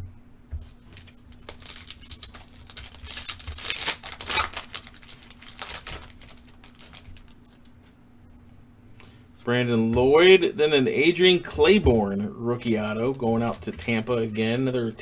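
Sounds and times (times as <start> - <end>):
cards rustling: 0.6 - 8.0, 12.5 - 15.0
foil wrapper tearing and crinkling: 0.7 - 8.0, 12.6 - 14.8.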